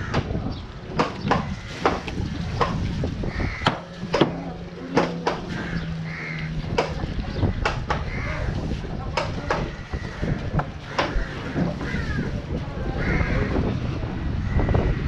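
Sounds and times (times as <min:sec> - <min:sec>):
cleaver chopping fish on wood: 0:00.9 - 0:02.8, 0:03.6 - 0:05.6, 0:06.7 - 0:07.0, 0:07.6 - 0:08.2
crows cawing: 0:03.3 - 0:04.0, 0:05.1 - 0:06.9, 0:08.0 - 0:08.6, 0:09.6 - 0:13.6.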